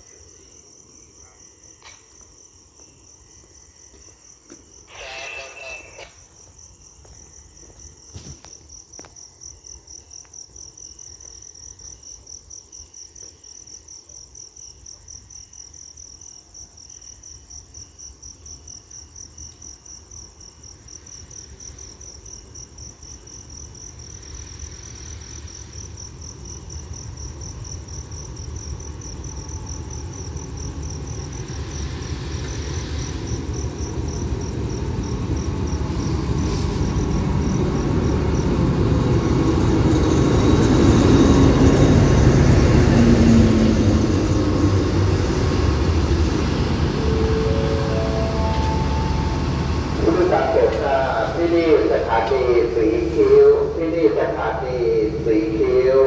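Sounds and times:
crickets chirping: 0.0 - 56.0
diesel locomotive rumble: 23.7 - 56.0.

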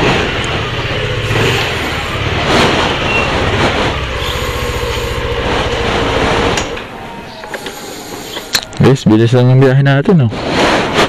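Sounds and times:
scooter engine running: 0.0 - 8.6.

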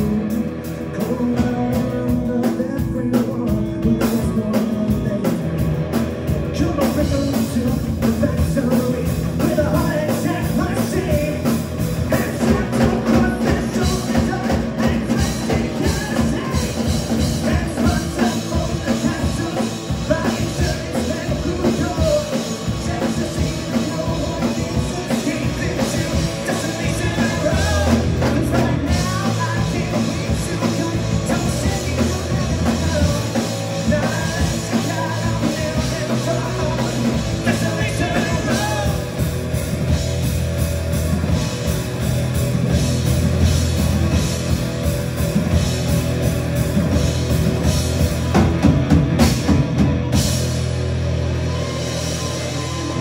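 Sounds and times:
person singing: 0.0 - 5.7, 6.4 - 39.3
rock band playing: 0.0 - 53.0.

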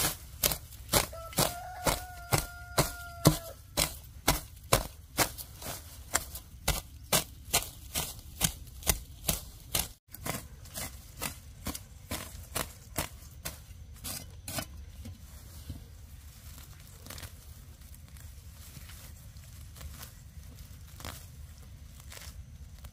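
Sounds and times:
sharp chopping strikes: 0.0 - 5.4, 6.1 - 10.4.

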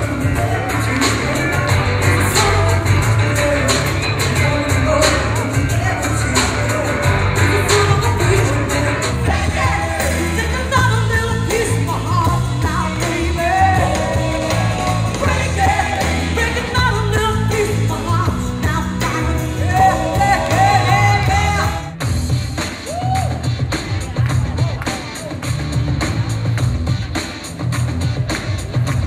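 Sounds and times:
loud rock music: 0.0 - 29.0
woman singing into a microphone: 7.6 - 21.9.

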